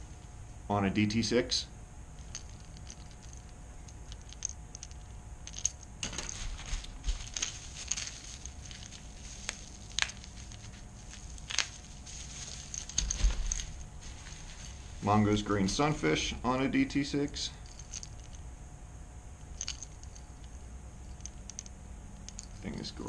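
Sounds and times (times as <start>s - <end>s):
wrapping crinkling and rustling: 6.0s - 15.2s.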